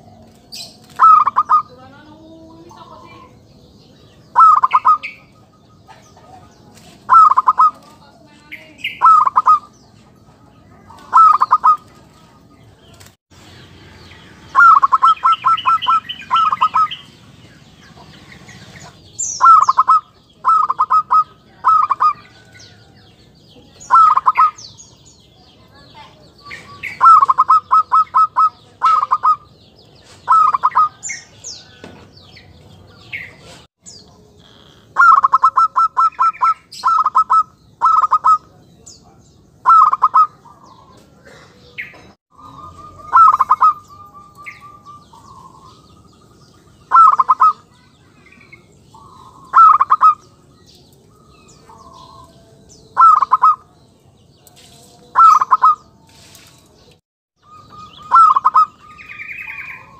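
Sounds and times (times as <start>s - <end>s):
dove cooing calls: 0.0s - 1.8s, 4.2s - 9.9s, 10.8s - 12.0s, 14.4s - 17.2s, 17.9s - 22.8s, 23.7s - 25.0s, 26.4s - 31.8s, 32.9s - 38.6s, 39.6s - 50.5s, 51.1s - 53.8s, 55.1s - 56.0s, 57.4s - 59.9s
small birds chirping: 0.0s - 59.9s.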